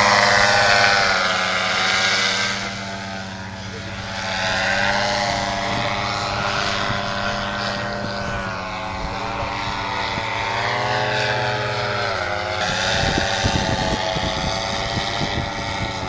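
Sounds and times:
paramotor engine droning: 0.0s - 16.0s.

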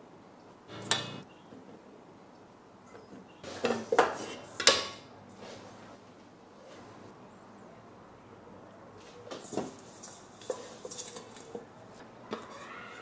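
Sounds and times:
spatula scraping dough: 9.3s - 11.7s.

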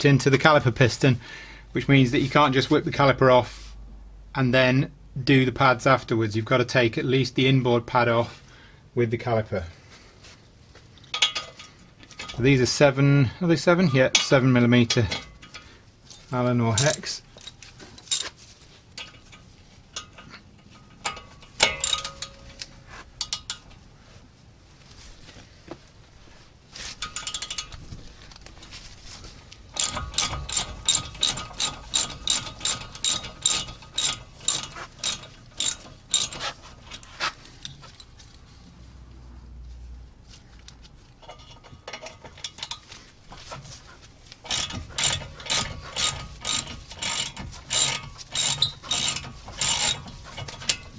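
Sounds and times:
hand ratchet clicking: 16.8s - 23.8s, 27.0s - 27.8s, 29.7s - 37.8s, 41.2s - 42.9s, 44.3s - 50.9s.

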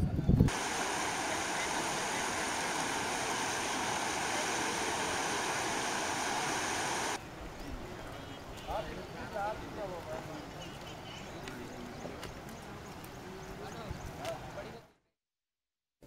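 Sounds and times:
flowing water rushing: 0.5s - 7.2s.

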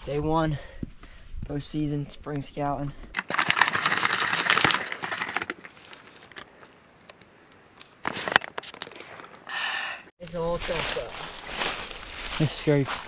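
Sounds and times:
plastic bottle crackling rattle: 3.2s - 6.8s.

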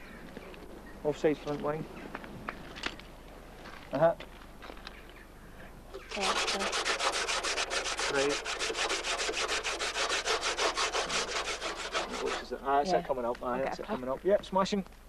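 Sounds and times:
gloved hand rubbing metal: 6.0s - 12.6s.

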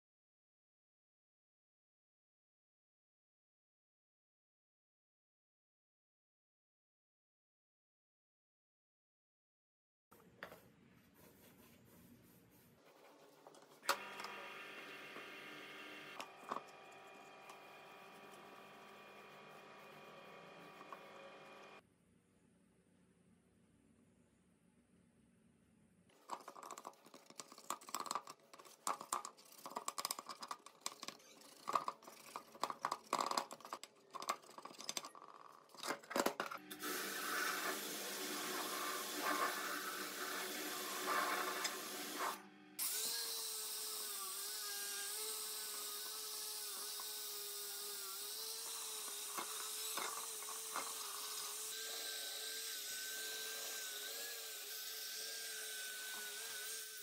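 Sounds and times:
electric power tool whine: 13.8s - 21.8s, 36.6s - 57.0s
tool clicks and scrapes on metal: 26.1s - 36.5s.

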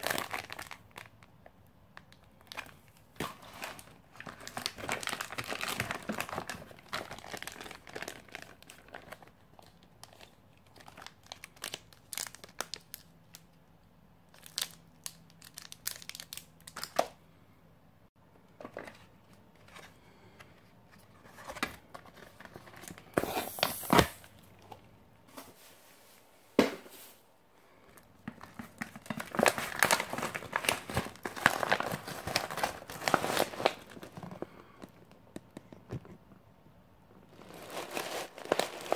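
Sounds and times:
plastic packaging crinkling: 0.0s - 1.4s, 2.0s - 13.4s, 14.3s - 17.0s, 28.1s - 35.0s, 37.3s - 38.9s.

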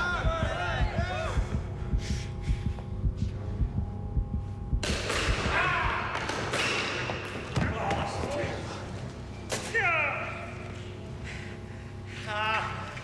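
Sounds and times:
low throbbing pulse: 0.0s - 6.2s.

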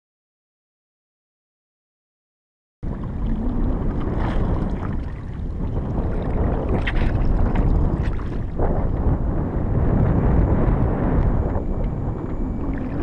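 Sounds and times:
water lapping against kayak hull: 2.8s - 13.0s
wind rumbling on microphone: 2.8s - 13.0s.

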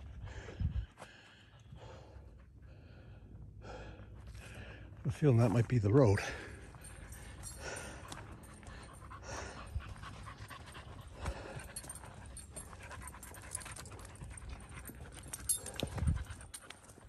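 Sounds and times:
dog panting: 6.2s - 17.0s.

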